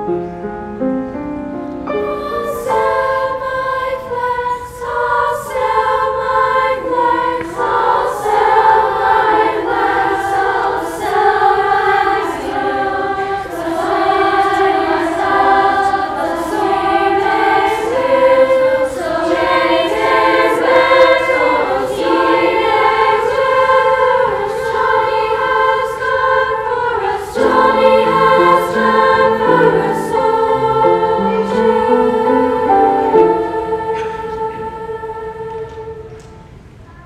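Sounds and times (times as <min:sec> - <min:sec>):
lower line of stepping notes: 0:00.0 - 0:36.2
girls' choir singing in harmony: 0:00.0 - 0:37.0.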